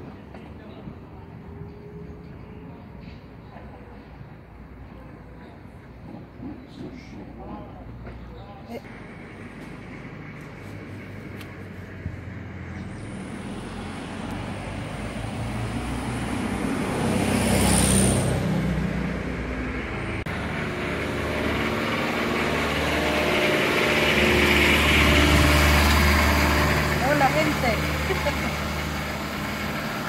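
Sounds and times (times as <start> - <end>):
vehicle engine idling: 0.0 - 17.0, 18.8 - 30.0
car driving past: 8.9 - 30.0.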